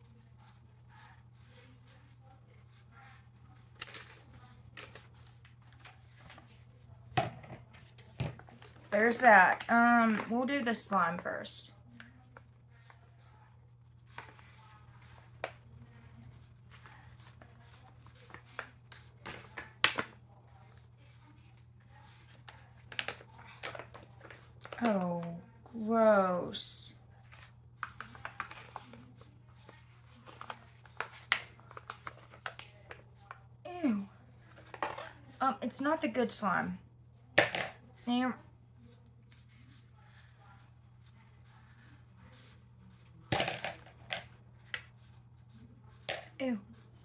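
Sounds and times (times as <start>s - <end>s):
paper rustling: 0.4s - 6.7s.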